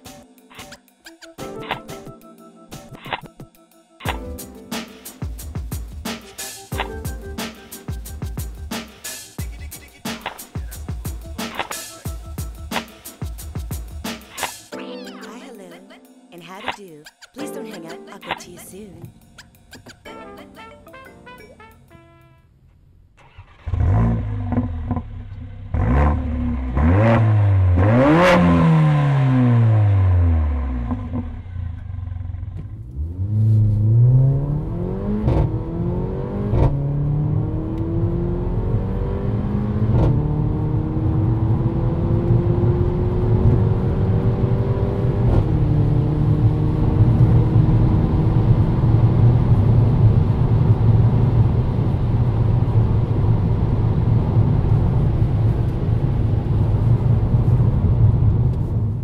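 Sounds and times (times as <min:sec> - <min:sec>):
car engine revving and accelerating: 0:23.2 - 0:59.0.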